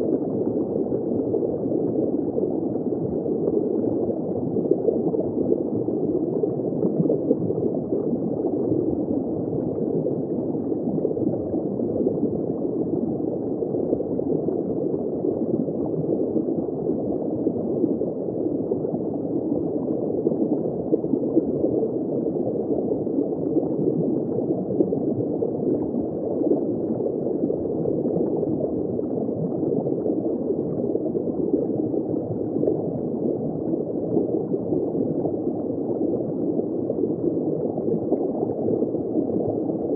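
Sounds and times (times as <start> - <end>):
muffled underwater rush: 0.0 - 39.9.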